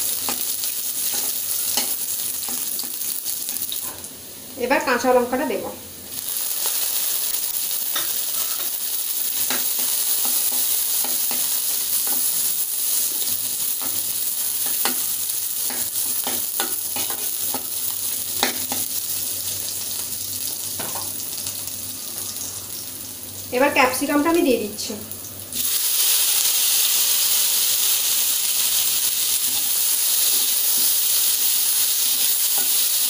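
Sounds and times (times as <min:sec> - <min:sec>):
vegetables sizzling in oil: 0:00.0 - 0:33.0
metal spatula scraping pan: 0:07.9 - 0:08.8.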